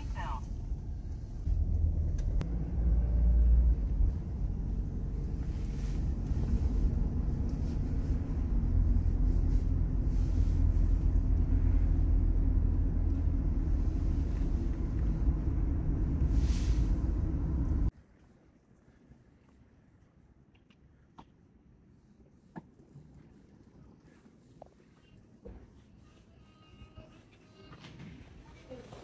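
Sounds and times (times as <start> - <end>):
car interior engine and road rumble: 0.0 - 17.9.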